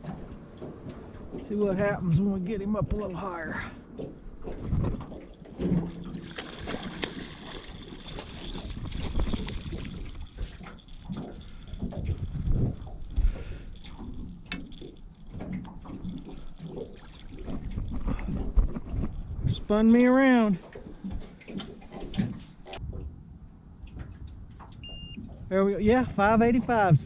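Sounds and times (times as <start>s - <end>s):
water splashing and sloshing: 0.0s - 27.0s
wind on microphone: 8.1s - 21.2s.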